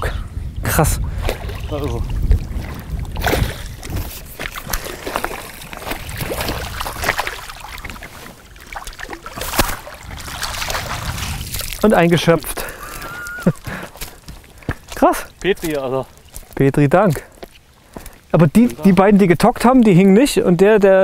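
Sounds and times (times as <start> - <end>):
fish thrashing and splashing: 1.1 - 15.4.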